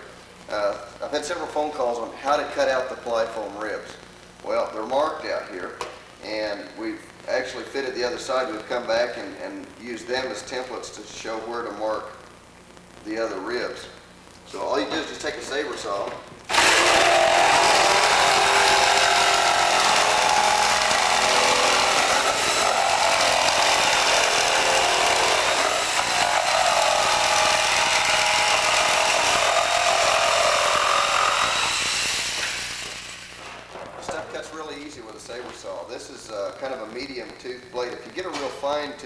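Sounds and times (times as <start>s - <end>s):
saber saw cutting: 16.5s - 33.7s.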